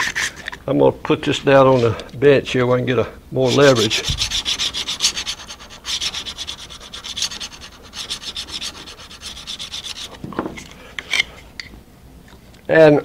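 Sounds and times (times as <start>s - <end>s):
stone scratching on steel blade: 3.4s - 10.2s.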